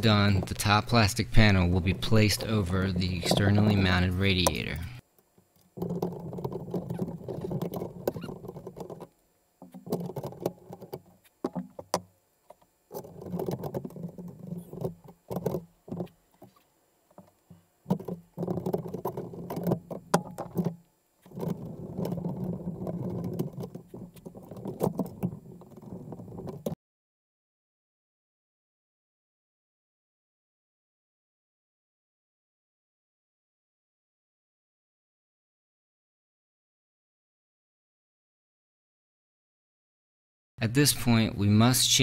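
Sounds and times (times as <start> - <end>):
dull scraping and rubbing: 0.0 - 5.0, 5.8 - 26.8.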